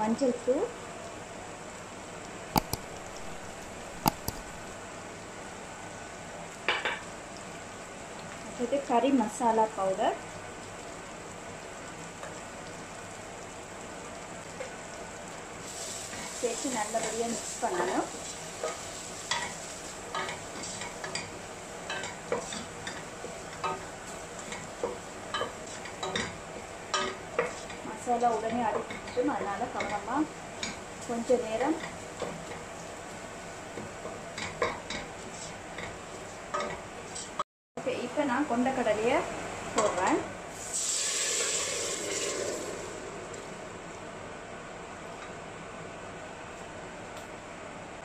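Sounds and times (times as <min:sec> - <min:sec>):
steady sizzle: 0:00.0 - 0:48.0
metal spoon tapping pot: 0:02.6 - 0:04.6.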